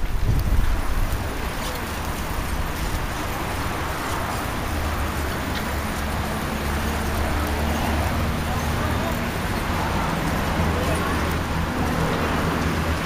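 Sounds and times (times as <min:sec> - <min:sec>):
wind rumble on microphone: 0:00.0 - 0:08.4
bicycles rolling on asphalt: 0:00.0 - 0:13.0.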